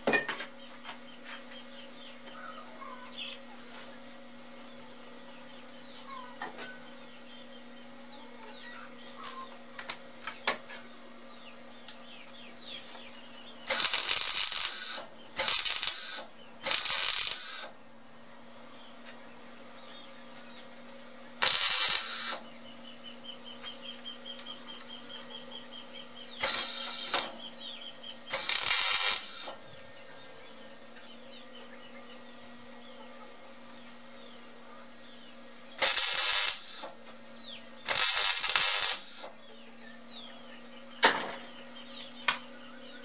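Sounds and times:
welder crackling bursts: 13.6 - 17.8, 21.4 - 22.5, 26.3 - 27.4, 28.2 - 29.6, 35.8 - 37.0, 37.8 - 39.4.

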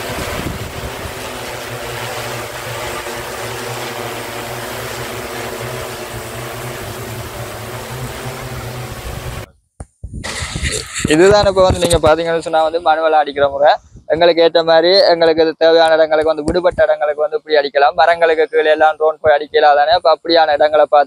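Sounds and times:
drone rotors buzzing: 0.0 - 9.5, 10.2 - 13.1.

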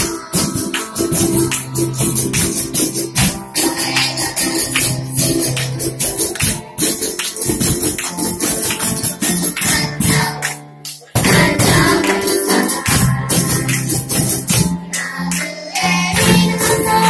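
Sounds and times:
children singing: 0.0 - 5.6, 9.4 - 10.6, 11.2 - 17.0
guitars: 0.0 - 17.0
jingling hand percussion: 0.0 - 17.0
percussion: 0.0 - 17.0.

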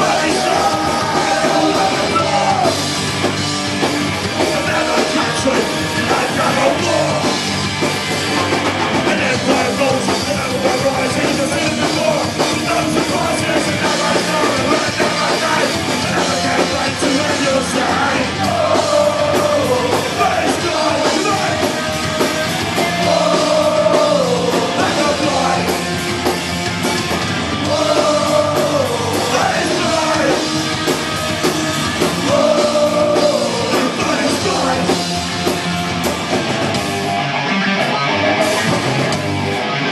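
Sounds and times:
shouted singing: 0.0 - 3.0, 4.4 - 7.4, 9.0 - 26.0, 27.6 - 31.0, 31.9 - 35.2
distorted electric guitar: 0.0 - 39.9
drum kit: 0.0 - 39.9.

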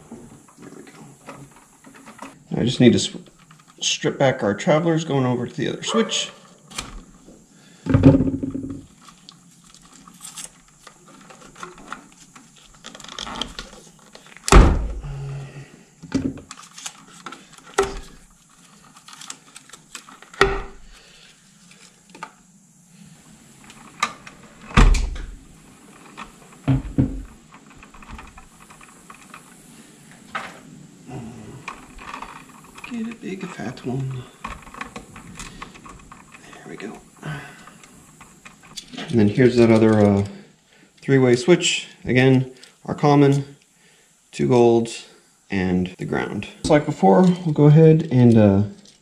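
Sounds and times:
dull thunks: 7.9 - 8.8, 14.5 - 15.1.

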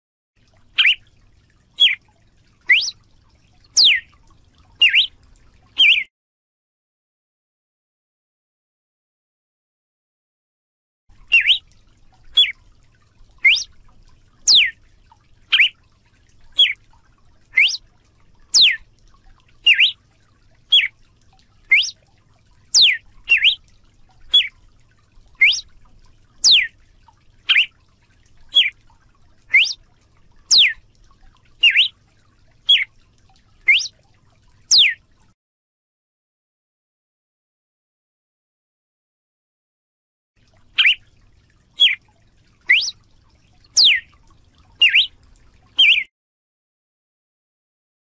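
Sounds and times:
bird whistling short notes: 0.8 - 1.0, 1.8 - 2.0, 2.7 - 3.0, 3.8 - 4.0, 4.8 - 5.1, 5.8 - 6.1, 11.3 - 11.6, 13.4 - 13.7, 14.5 - 14.7, 15.5 - 15.7, 16.6 - 16.8, 17.6 - 17.8, 18.6 - 18.8, 19.7 - 20.0, 20.7 - 20.9, 21.7 - 21.9, 22.8 - 23.6, 25.4 - 25.6, 26.4 - 26.7, 27.5 - 27.7, 29.5 - 29.8, 30.5 - 30.8, 31.6 - 31.9, 32.7 - 32.9, 33.7 - 33.9, 34.7 - 35.0, 40.8 - 41.0, 41.8 - 42.0, 42.7 - 43.0, 43.8 - 44.0, 44.8 - 45.1, 45.8 - 46.1.

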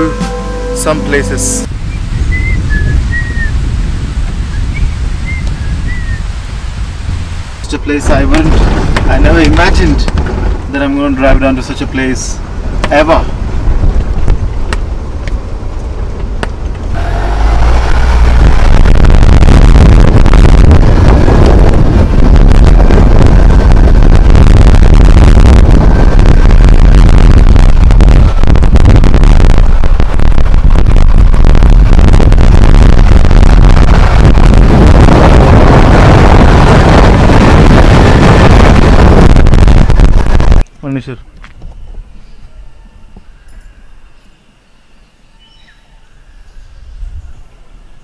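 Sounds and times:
wind rushing: 1.6 - 40.7
tyre noise on rough road: 1.9 - 40.7.

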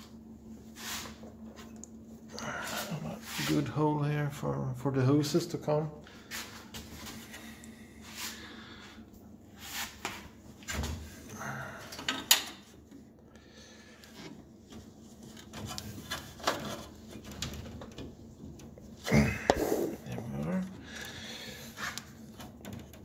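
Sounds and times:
clicks of hoses and wiring: 11.9 - 13.0.

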